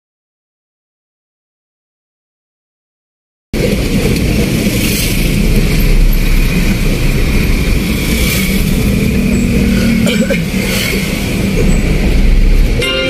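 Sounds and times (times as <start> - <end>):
vehicle engine and road rumble: 3.6 - 13.0.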